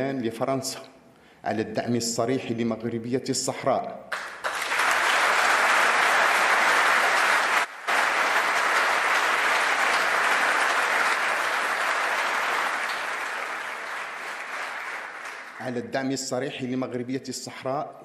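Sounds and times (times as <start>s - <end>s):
crowd applauding: 4.1s - 15.8s.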